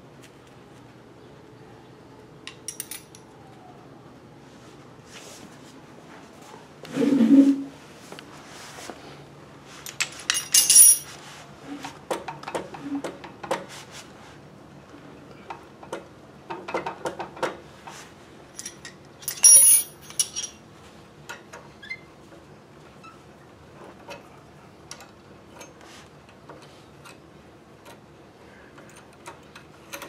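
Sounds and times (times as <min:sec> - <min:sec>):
metallic clicks and clinks: 0:02.5 - 0:03.2, 0:09.9 - 0:11.1, 0:18.6 - 0:20.6.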